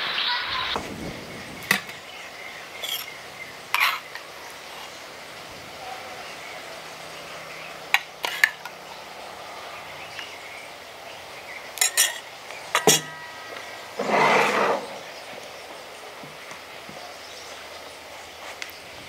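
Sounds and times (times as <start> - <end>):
ladle clinking on steel bowl: 11.8 - 13.4.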